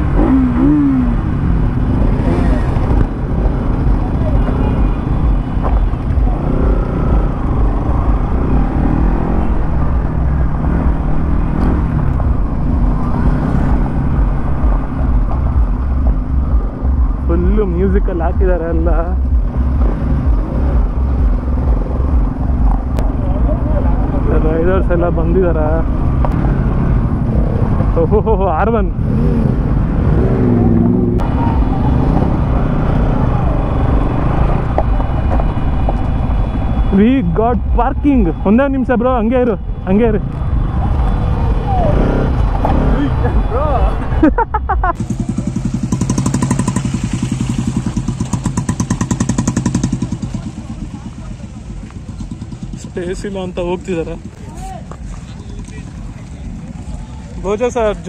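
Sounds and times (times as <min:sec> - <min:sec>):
low rumble: 0:00.0 - 0:49.3
motorcycle engine revving: 0:00.0 - 0:58.0
motorcycle engine running slowly: 0:44.5 - 0:53.2.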